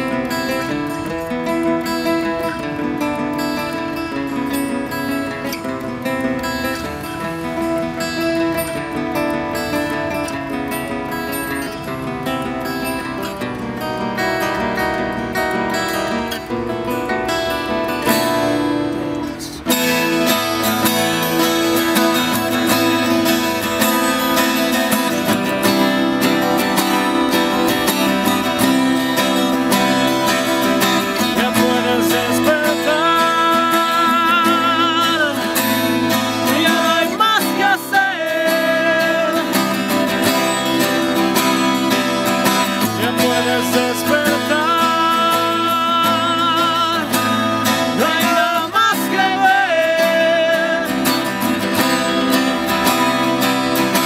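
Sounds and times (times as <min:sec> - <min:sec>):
acoustic guitars strummed: 0:00.0 - 0:54.0
man singing with vibrato: 0:17.8 - 0:53.4.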